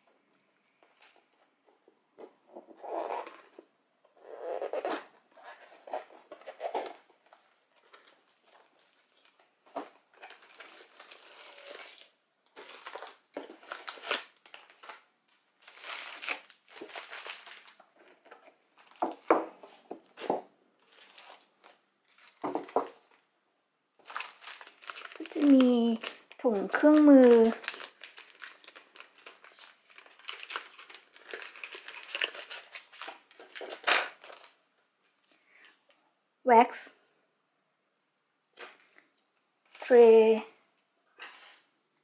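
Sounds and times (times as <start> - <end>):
plastic packaging crinkling: 4.7 - 19.3, 20.0 - 23.3, 24.0 - 34.6
plastic wrap tearing: 10.2 - 17.9, 20.2 - 23.2, 24.0 - 34.6.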